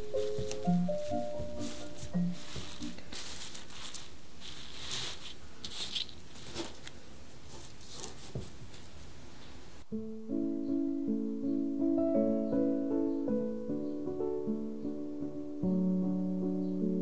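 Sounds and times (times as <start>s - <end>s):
piano music: 0.0s - 4.3s, 9.9s - 17.0s
hands rustling leafy stems: 0.0s - 9.1s.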